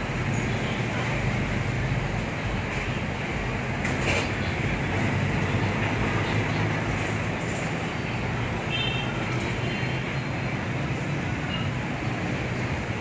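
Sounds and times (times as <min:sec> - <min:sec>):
road noise: 0:00.0 - 0:13.0
traffic engine rumble: 0:00.0 - 0:13.0.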